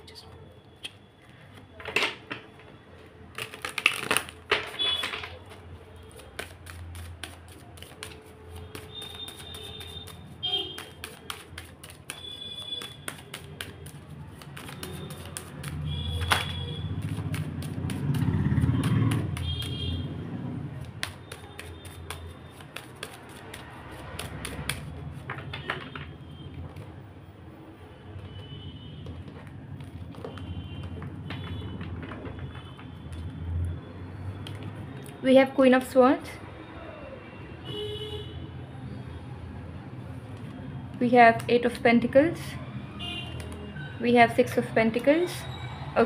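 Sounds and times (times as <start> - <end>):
cards being shuffled: 3.3 - 19.9, 20.8 - 25.9.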